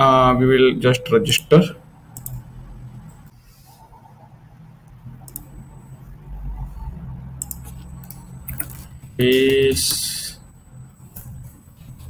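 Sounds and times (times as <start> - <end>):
low room hum: 0.0 - 12.0
computer mouse clicks: 2.1 - 2.5, 4.8 - 5.5, 7.4 - 8.9.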